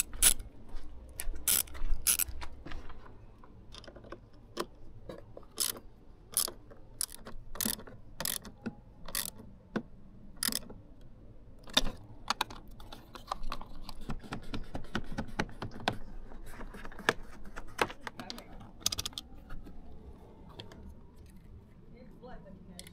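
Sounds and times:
mechanical clicks of small parts: 0:01.2 - 0:02.3, 0:05.5 - 0:09.4, 0:10.4 - 0:12.6.

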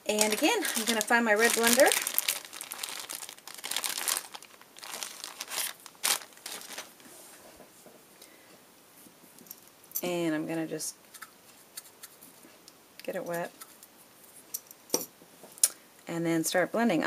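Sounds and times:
plastic bag crinkling: 0:00.0 - 0:07.1.

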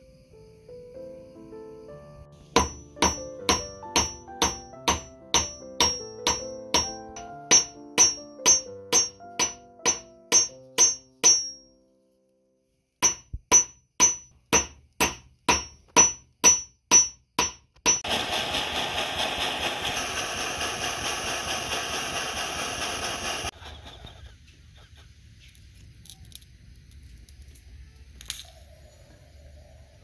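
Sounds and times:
hammer striking ring on anvil: 0:02.6 - 0:11.7, 0:13.0 - 0:18.1.

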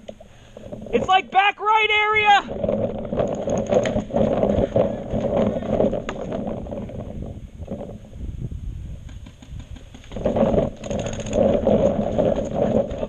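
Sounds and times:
camera handling rumble: 0:02.5 - 0:08.3, 0:09.0 - 0:13.0.

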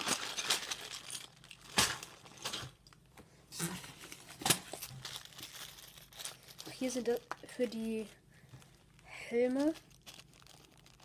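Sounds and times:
plastic pieces clattering: 0:00.0 - 0:03.0, 0:09.3 - 0:11.0
plastic bags crinkling: 0:00.0 - 0:03.1, 0:03.8 - 0:11.0.

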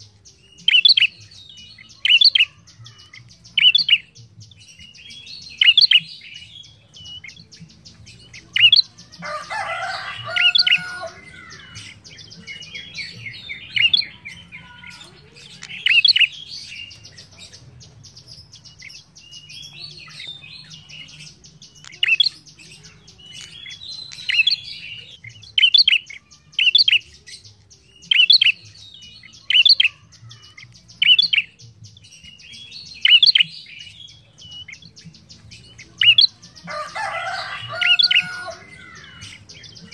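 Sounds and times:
bird chattering: 0:08.0 - 0:27.1.

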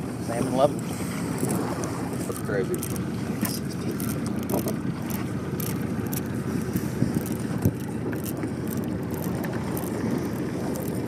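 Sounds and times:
outboard motor running: 0:00.0 - 0:11.0
water noise: 0:00.0 - 0:11.0
wind noise: 0:06.5 - 0:11.0.

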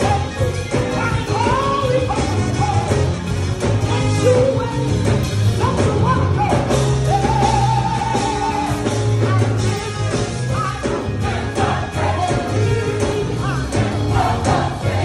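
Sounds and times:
band with guitar and drums: 0:00.0 - 0:15.0
bass line: 0:00.0 - 0:15.0
gospel choir singing: 0:07.0 - 0:15.0.

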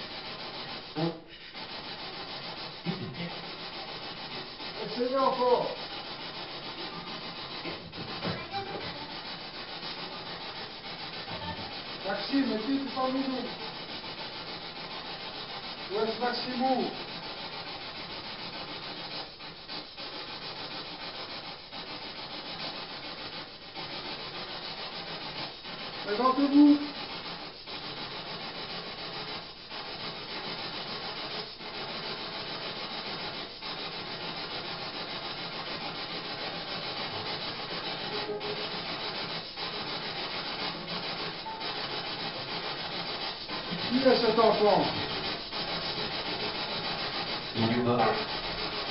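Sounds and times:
static hiss: 0:25.8 - 0:48.9.

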